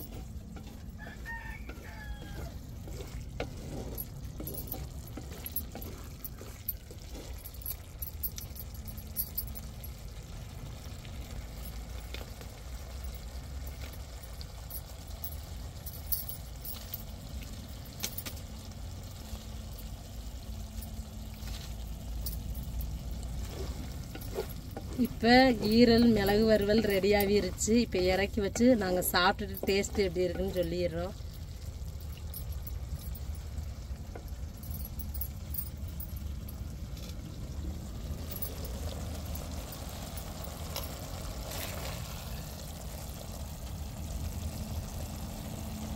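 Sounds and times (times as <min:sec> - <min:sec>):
low steady rumble: 0:00.0 - 0:45.9
rooster crowing: 0:00.8 - 0:03.0.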